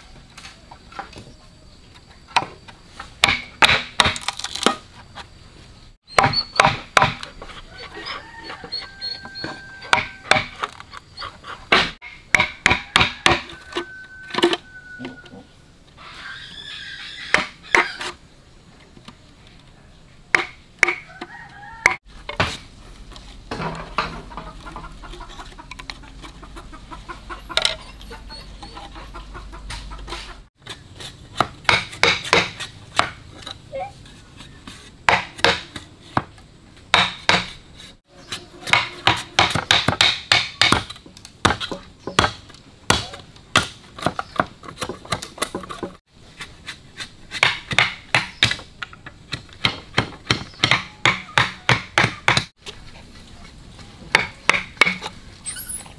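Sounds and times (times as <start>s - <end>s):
chickens clucking: 7.3s - 11.8s, 23.8s - 30.5s.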